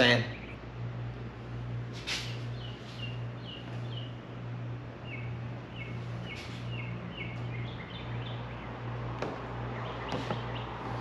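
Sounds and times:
steady low hum: 0.0s - 11.0s
small bird chirping: 2.4s - 4.2s, 5.0s - 8.8s.

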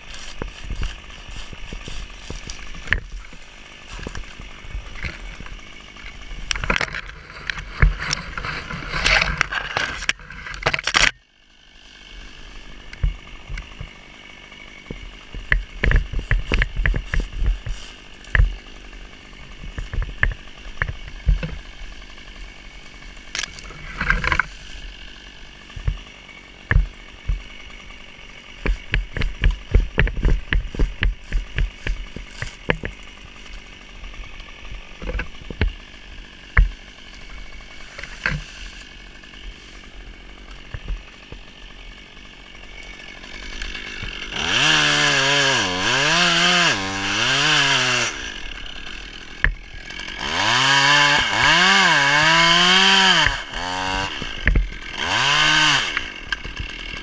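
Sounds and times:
chainsaw revving: 0.0s - 57.0s
sharp knocks and clicks: 0.3s - 3.4s, 6.5s - 11.1s, 14.9s - 18.6s, 19.6s - 21.6s, 25.7s - 26.0s, 26.7s - 27.5s, 28.6s - 33.1s, 34.4s - 35.8s, 36.5s - 36.8s, 40.5s - 41.6s, 54.2s - 54.8s.

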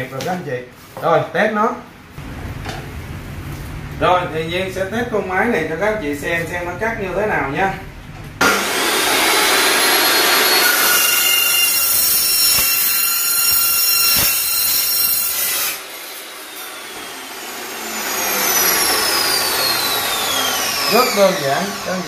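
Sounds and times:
saw blade whine winding down: 8.4s - 15.1s, 15.8s - 22.0s
metal cutting saw screeching: 9.4s - 22.0s.

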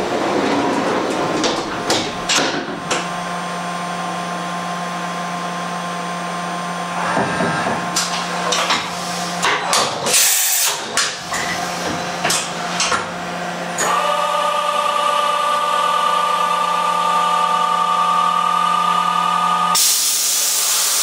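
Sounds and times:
machining center humming: 0.0s - 21.0s
loud hiss burst: 19.8s - 21.0s.

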